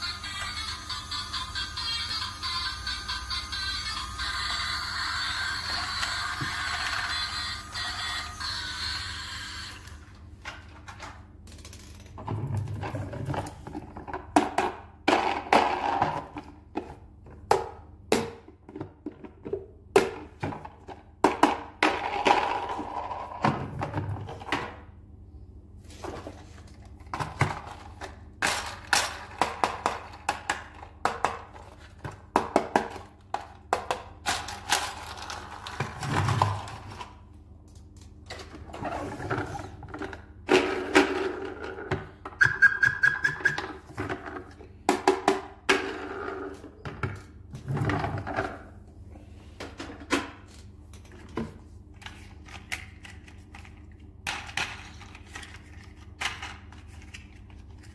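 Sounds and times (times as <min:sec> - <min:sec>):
plastic toy vehicles clicking and knocking: 0:27.1 - 0:37.1, 0:52.0 - 0:57.9.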